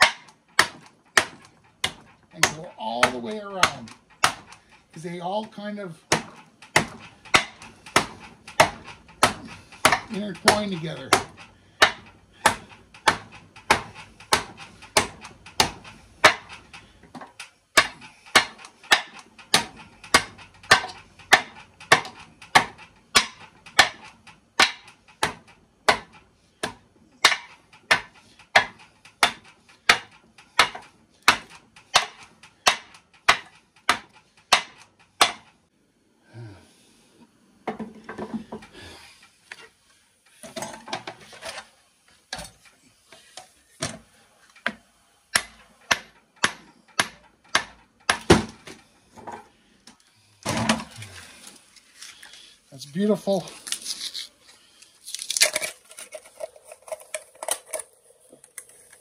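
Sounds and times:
hammer striking copper windings: 0.0s - 35.6s, 43.8s - 49.5s.

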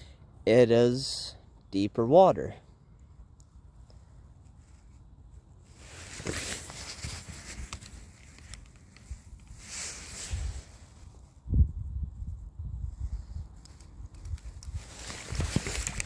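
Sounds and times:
phone handling rustle: 6.0s - 9.6s, 13.6s - 16.0s
small clicks: 7.6s - 9.5s, 13.6s - 14.8s.

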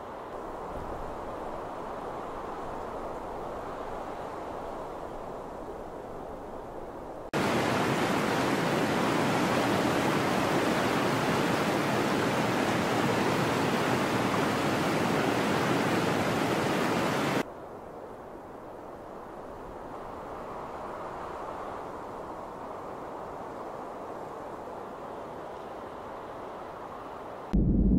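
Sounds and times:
waterfall rushing: 7.4s - 17.4s.

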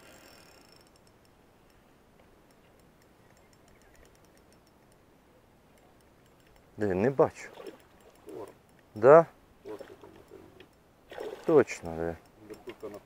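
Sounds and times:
fishing reel ticking: 0.0s - 1.8s, 7.7s - 8.8s, 11.5s - 13.0s.

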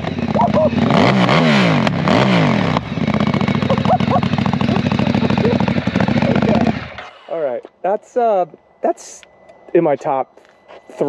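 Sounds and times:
motorcycle engine idling: 0.0s - 7.6s
motorcycle engine revving: 0.0s - 7.7s.

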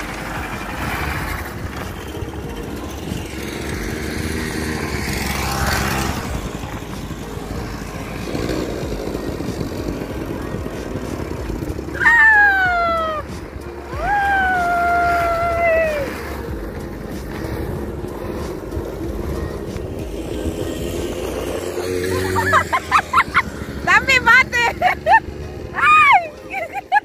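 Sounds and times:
quad bike engine running: 0.0s - 27.0s
loud high falling cry: 11.9s - 13.3s, 13.9s - 16.2s.

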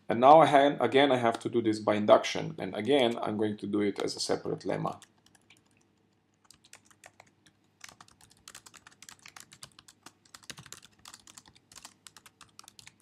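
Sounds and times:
keyboard typing: 4.9s - 13.0s.

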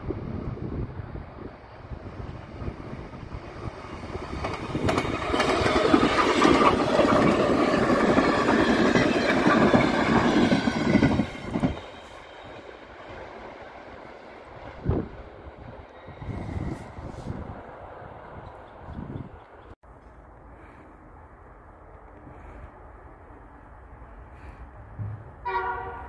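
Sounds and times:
electric train passing: 0.0s - 19.7s.

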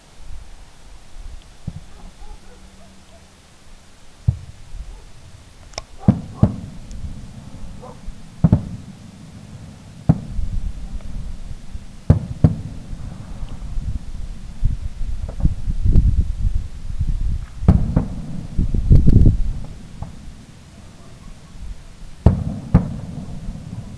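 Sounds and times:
firework shells bursting: 4.2s - 15.9s, 17.3s - 20.9s, 22.2s - 23.9s.

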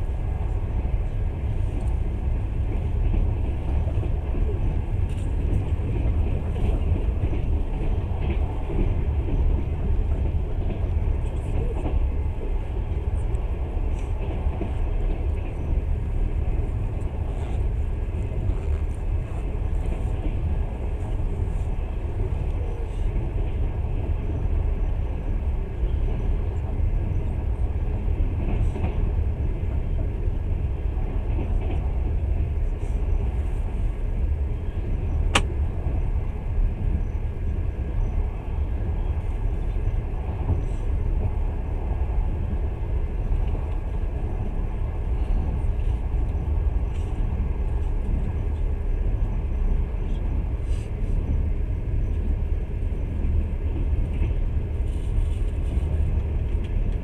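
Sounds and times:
train wheels rumbling on rails: 0.0s - 57.0s
sharp click: 35.3s - 35.5s.

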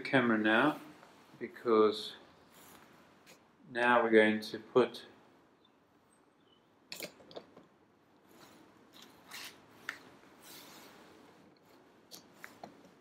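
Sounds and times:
rubbing and rustling: 8.3s - 13.0s.

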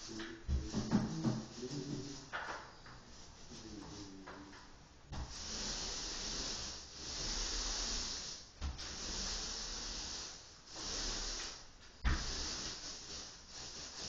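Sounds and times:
spray paint hissing: 5.1s - 14.0s.

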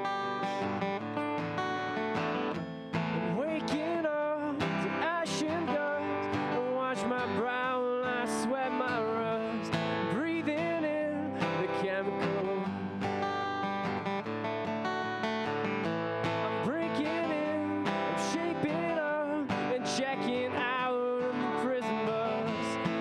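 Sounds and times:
acoustic guitar strumming: 0.0s - 23.0s
man singing into microphone: 3.2s - 12.9s, 16.4s - 23.0s.

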